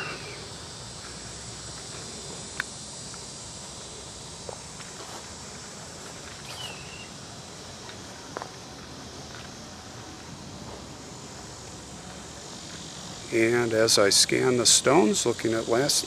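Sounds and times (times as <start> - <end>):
high insect buzz: 0.0 - 16.0
soft footsteps on grass: 3.6 - 7.1, 7.8 - 11.0.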